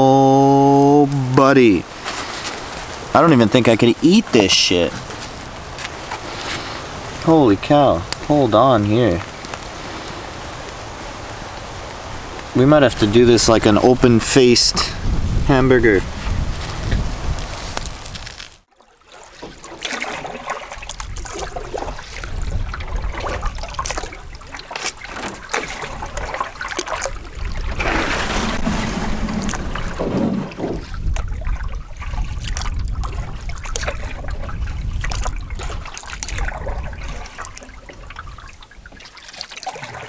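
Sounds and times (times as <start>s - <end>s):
water splashing and trickling: 0.0s - 40.0s
wind rumble on microphone: 6.8s - 18.5s, 20.8s - 24.5s, 25.8s - 39.0s.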